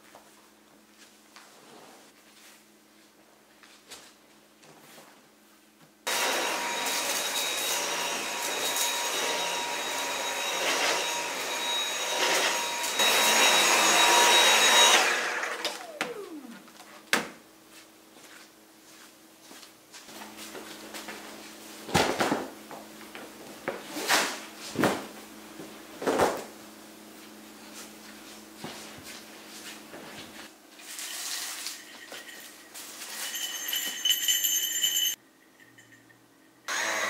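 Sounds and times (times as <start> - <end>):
vacuum motor winding down: 6.1 - 16.9, 36.7 - 37.0.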